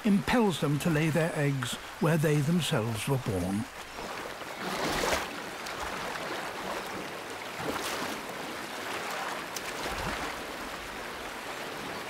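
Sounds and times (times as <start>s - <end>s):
river rushing over stones: 0.0s - 12.0s
bear splashing through water: 4.0s - 8.2s.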